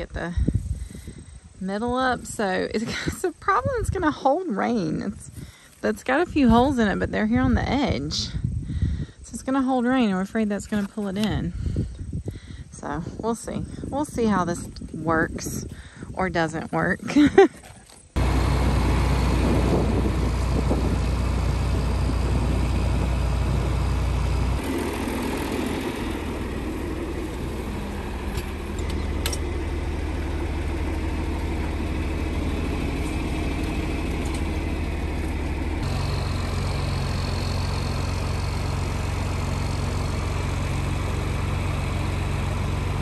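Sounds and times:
tractor engine idling: 18.2 - 43.0.

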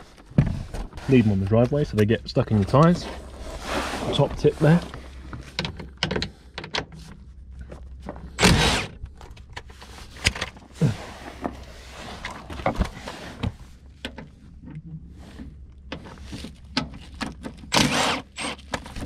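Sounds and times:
impact wrench burst: 17.7 - 18.6.

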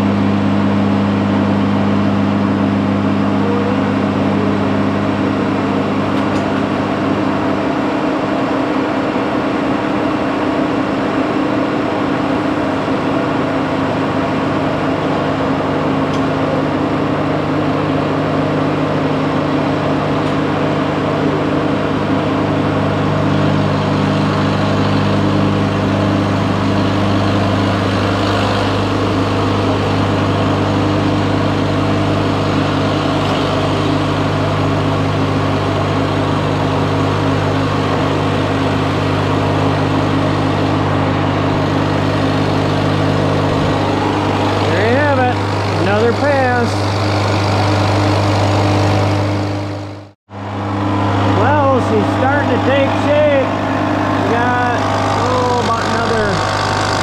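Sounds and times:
machine hum: 0.0 - 57.0.

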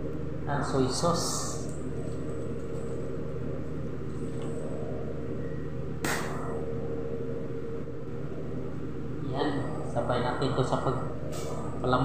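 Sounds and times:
low mechanical hum: 0.0 - 12.0
sharp click: 6.0 - 6.5.

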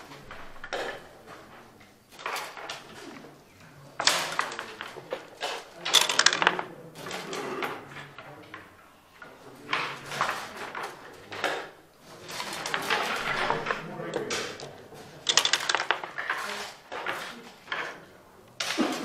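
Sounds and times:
dice and checkers clattering: 2.1 - 3.0, 4.0 - 8.7, 9.7 - 18.0.

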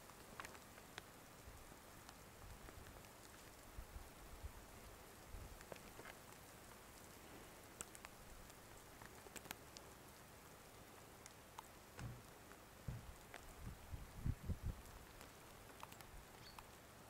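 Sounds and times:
soft low thump: 12.0 - 12.3, 12.9 - 13.2.

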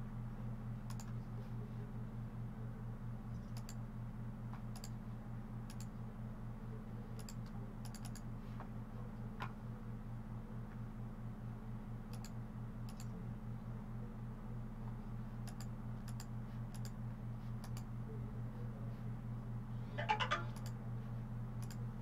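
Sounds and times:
steady low hum: 0.0 - 22.0
computer mouse clicks: 0.9 - 1.2, 3.4 - 3.8, 4.7 - 5.0, 5.7 - 5.9, 7.2 - 8.3, 12.1 - 13.1, 15.4 - 17.0, 17.6 - 17.9, 21.6 - 21.8.

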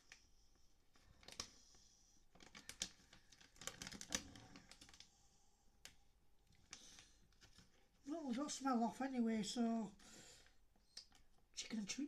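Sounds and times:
plastic packet crinkling: 2.3 - 5.1.

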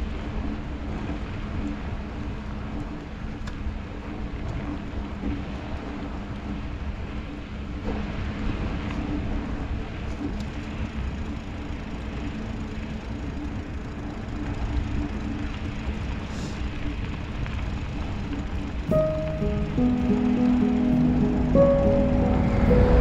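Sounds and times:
faint hum: 18.8 - 23.0.

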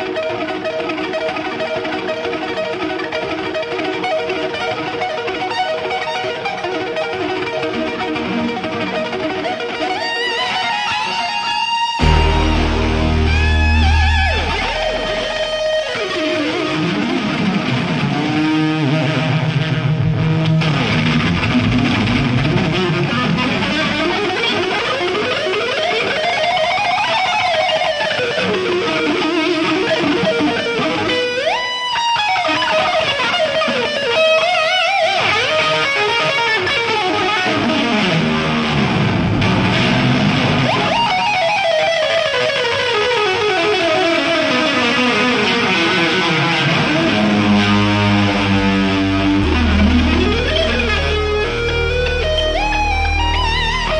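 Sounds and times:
electric guitar solo: 0.0 - 53.9.

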